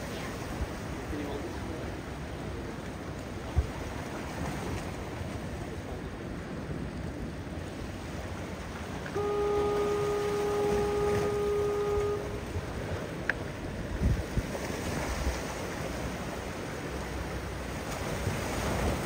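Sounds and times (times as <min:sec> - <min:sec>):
surf: 0:00.0 - 0:19.0
wind: 0:00.0 - 0:19.0
horn blast: 0:09.1 - 0:12.9.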